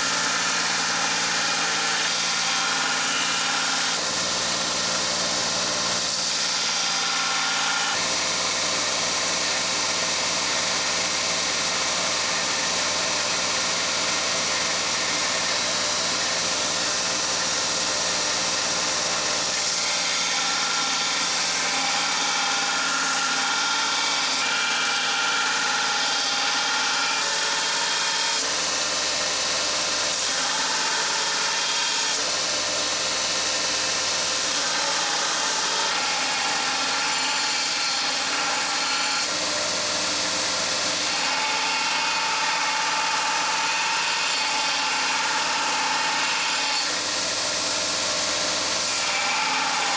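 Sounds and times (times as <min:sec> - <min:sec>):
belt grinder motor humming: 0:00.0 - 0:49.9
blade grinding on belt: 0:00.0 - 0:49.9.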